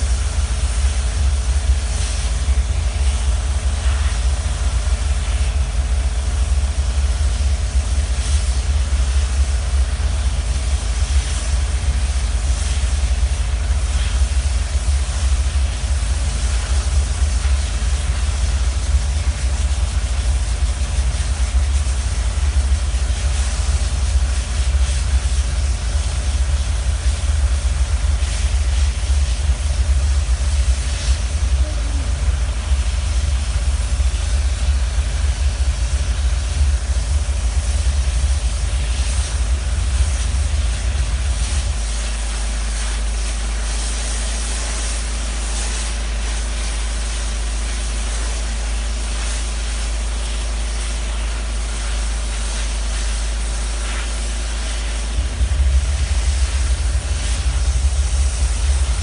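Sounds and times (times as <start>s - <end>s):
machinery droning: 21.0s - 42.4s, 53.9s - 59.0s
steam lance hissing: 49.2s - 59.0s.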